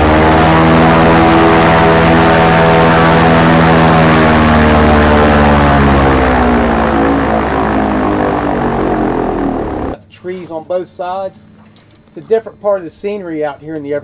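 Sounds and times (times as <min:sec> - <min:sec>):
airboat engine and propeller: 0:00.0 - 0:10.0.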